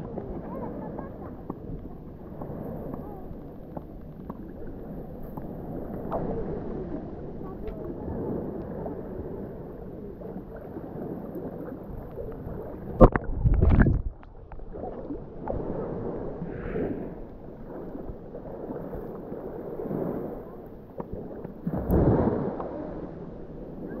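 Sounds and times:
waves washing over pebbles: 10.7 - 20.4, 21.0 - 23.9.

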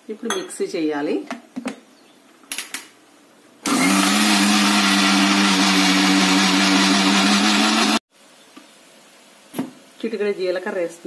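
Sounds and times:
mixer grinder motor grinding: 3.6 - 8.0.

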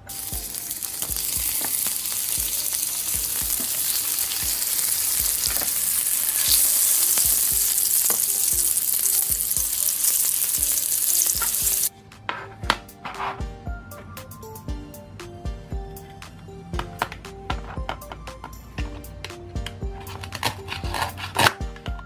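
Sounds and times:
food sizzling on grill: 0.0 - 11.9.

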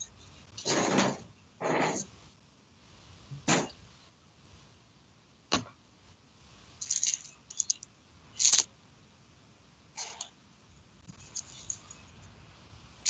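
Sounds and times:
rustling: 11.0 - 12.4.

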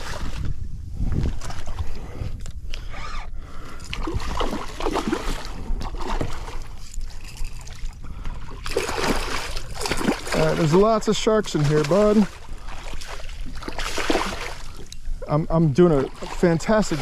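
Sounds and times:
steady low rumble: 0.0 - 17.0
fish thrashing and splashing: 3.8 - 14.9.

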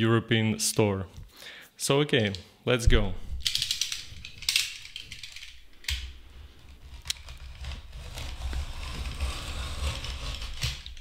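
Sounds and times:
knife cutting packing tape: 6.9 - 11.0.

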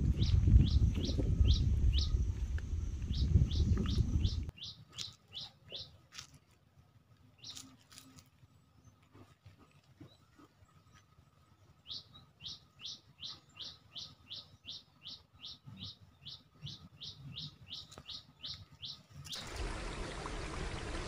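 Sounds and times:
bird chirping: 0.0 - 6.0, 11.8 - 21.0.

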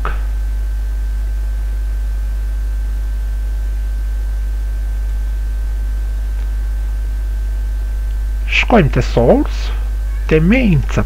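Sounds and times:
low electrical hum: 0.0 - 11.0
high-pitched whine: 8.4 - 11.0.

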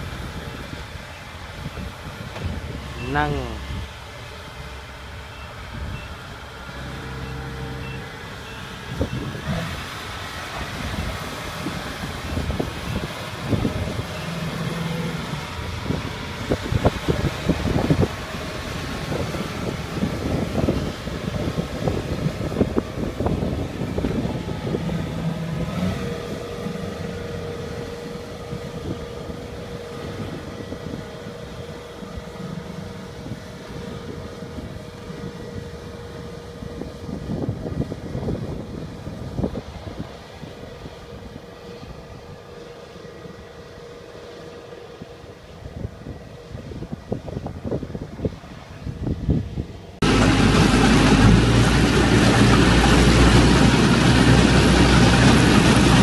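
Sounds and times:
diesel engine running: 0.0 - 56.0
tracks clanking and rattling: 50.0 - 56.0.

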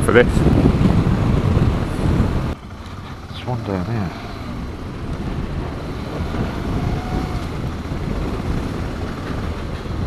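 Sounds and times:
motorcycle engine and road noise: 0.0 - 10.0
wind rushing over microphone: 0.0 - 10.0.

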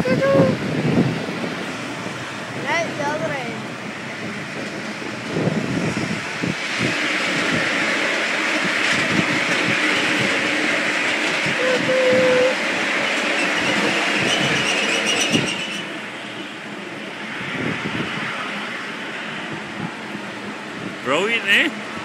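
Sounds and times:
toy train wheels rumbling on rails: 2.6 - 16.4
train wheel squeal: 6.7 - 16.7.

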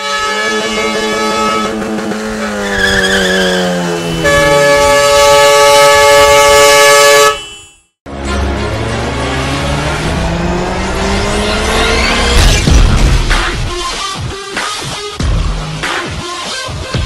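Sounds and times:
truck air horn blasting: 0.0 - 9.5
vehicle passing close: 8.3 - 13.6.

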